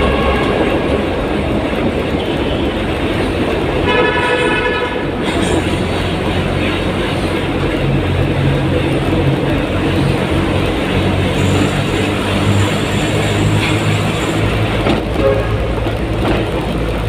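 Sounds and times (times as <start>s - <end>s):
car horn: 0.0s - 1.1s, 3.8s - 5.4s, 15.1s - 15.8s
road and engine rumble in tunnel: 0.0s - 17.0s.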